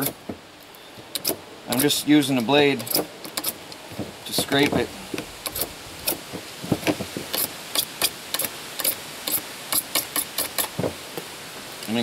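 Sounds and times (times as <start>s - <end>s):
blade scraping plastic pipe: 4.2s - 10.9s.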